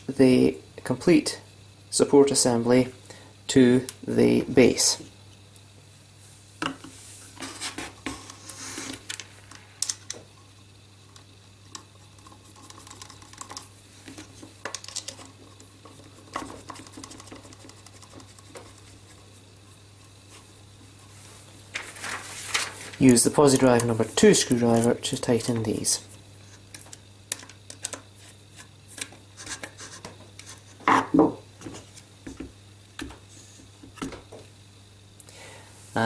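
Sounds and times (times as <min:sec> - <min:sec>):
small screws clicking: 0:09.1 - 0:10.2.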